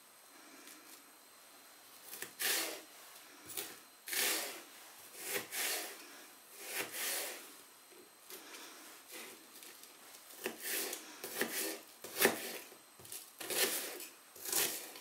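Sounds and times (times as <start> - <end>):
knife crunching through onion: 5.2 - 6.0, 10.3 - 15.0.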